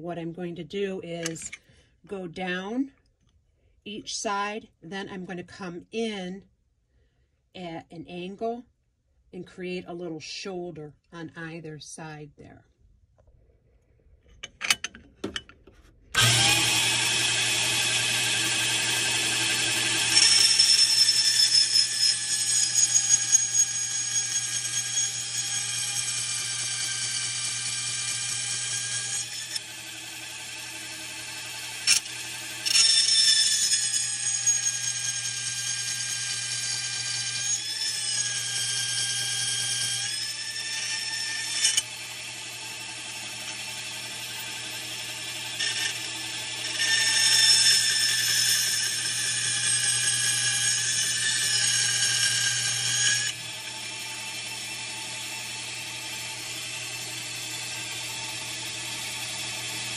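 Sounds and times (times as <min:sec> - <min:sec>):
bandsaw running whine: 0:16.2 - 0:59.9.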